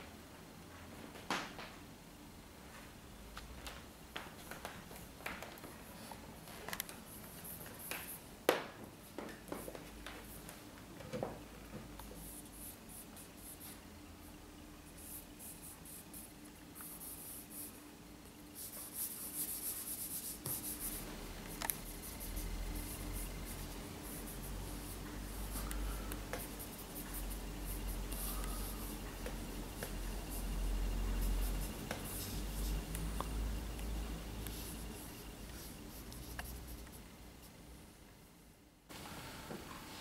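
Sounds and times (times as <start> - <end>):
charcoal scratching on paper: 18.6 - 33.0.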